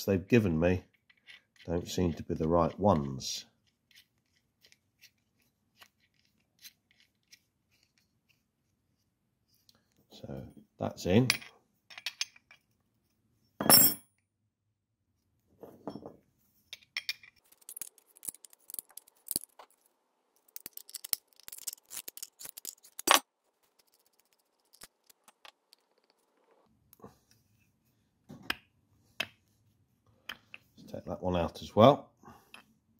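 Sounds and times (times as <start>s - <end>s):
metal tools clicking and scraping: 20.4s - 26.5s.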